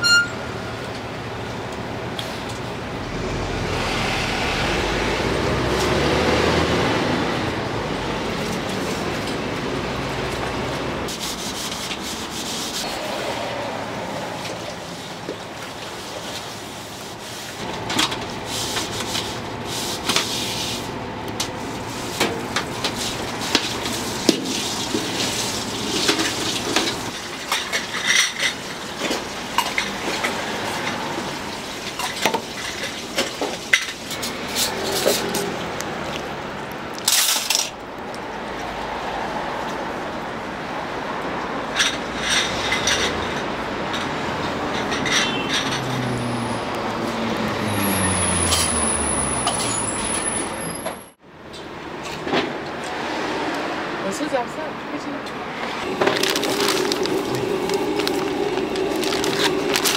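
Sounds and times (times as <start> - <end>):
rubbing scraping noise: 11.1 - 13.6.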